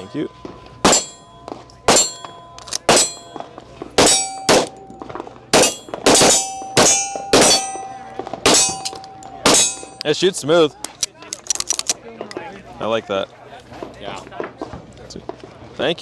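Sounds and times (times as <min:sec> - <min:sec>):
steel targets ringing: 0:00.0 - 0:10.2
pistol shots: 0:00.8 - 0:10.0.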